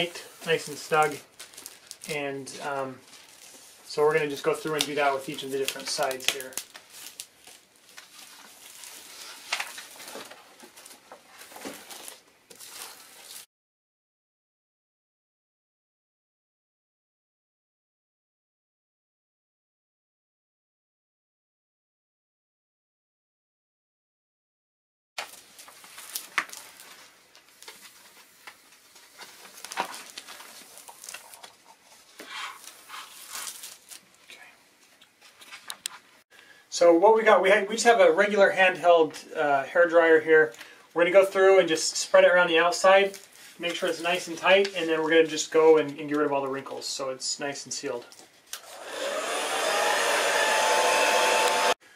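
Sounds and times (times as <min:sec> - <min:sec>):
plastic film crinkling: 0:00.0 - 0:13.5, 0:25.2 - 0:36.1, 0:42.1 - 0:45.9.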